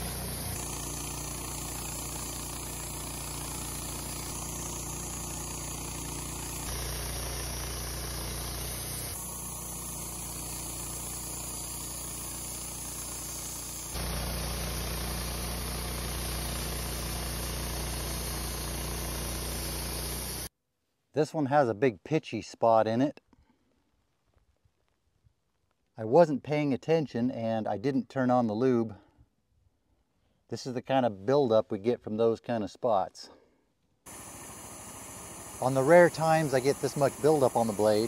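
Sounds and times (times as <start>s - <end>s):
band blade sawing log: 0.0s - 20.5s, 34.1s - 38.0s
sawmill engine droning: 0.0s - 20.5s, 34.1s - 38.0s.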